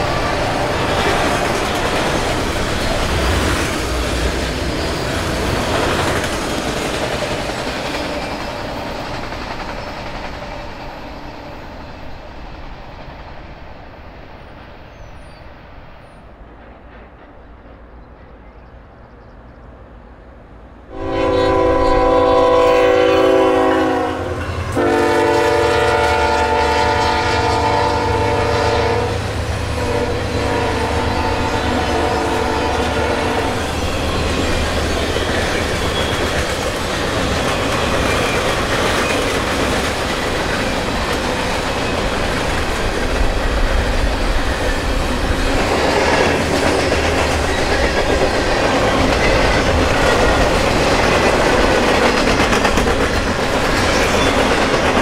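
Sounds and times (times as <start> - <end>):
locomotive engines rumbling: 0.0 - 55.0
train rumble: 0.0 - 55.0
locomotive air horn blasts: 20.9 - 33.6.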